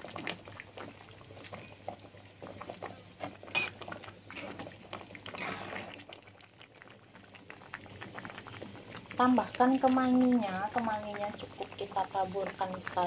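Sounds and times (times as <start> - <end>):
ladle stirring broth: 0.0 - 9.1
soup bubbling and popping: 0.0 - 13.0.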